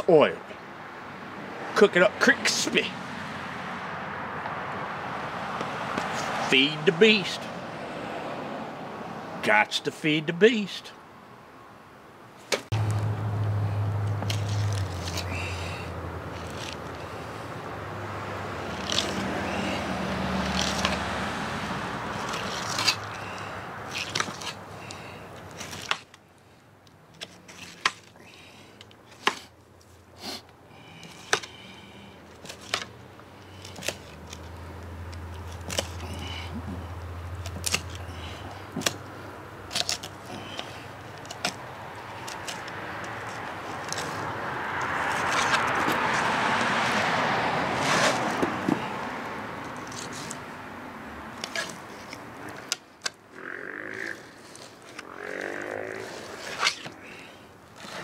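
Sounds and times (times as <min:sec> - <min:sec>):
passing traffic rushing: 0:00.0 - 0:58.0
knife scraping and clicking on bones: 0:18.7 - 0:19.2, 0:39.7 - 0:41.6, 0:42.2 - 0:44.2, 0:51.4 - 0:53.2.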